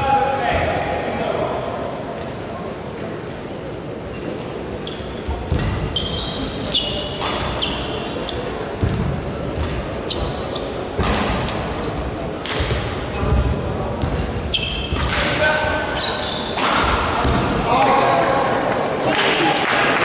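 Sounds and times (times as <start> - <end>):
shoes squeaking on floor: 4.1 - 8.6, 9.6 - 12.1, 14.1 - 15.1, 15.8 - 17.2
racket striking shuttlecock: 12.4 - 12.8.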